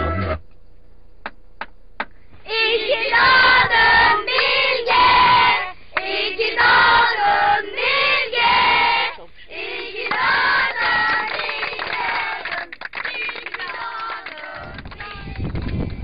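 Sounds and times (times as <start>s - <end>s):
children singing in unison: 2.5s - 9.0s.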